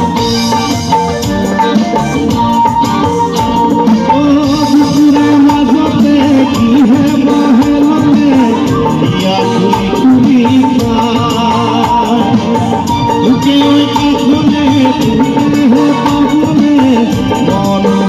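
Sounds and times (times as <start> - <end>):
band with drums and percussion: 0.0 - 18.0
man singing into a microphone: 3.6 - 18.0.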